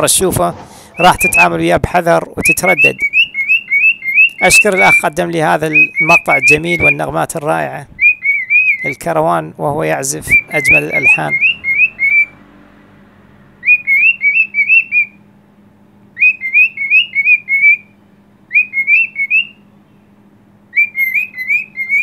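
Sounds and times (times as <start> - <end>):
cockatiel whistling a tune: 1.0 - 1.6, 2.4 - 5.0, 5.7 - 7.0, 8.0 - 9.0, 10.3 - 12.3, 13.6 - 15.2, 16.2 - 17.9, 18.5 - 19.6, 20.7 - 22.0.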